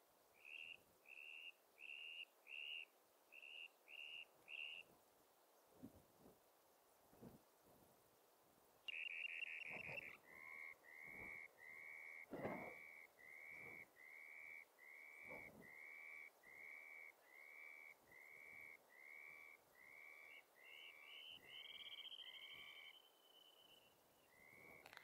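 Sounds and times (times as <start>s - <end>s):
short high whistled calls: 20.3s - 24.9s.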